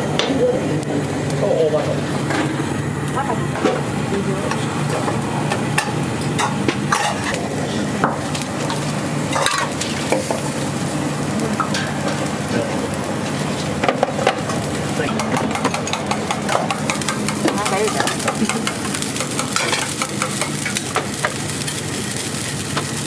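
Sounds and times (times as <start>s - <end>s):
food sizzling in a pan: 0.6s - 23.0s
utensils and dishes clinking: 4.5s - 10.5s, 11.5s - 21.8s.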